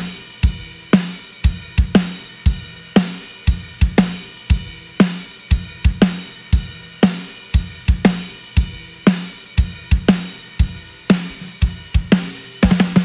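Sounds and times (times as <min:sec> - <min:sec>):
drum kit shuffle groove: 0:00.0 - 0:13.0.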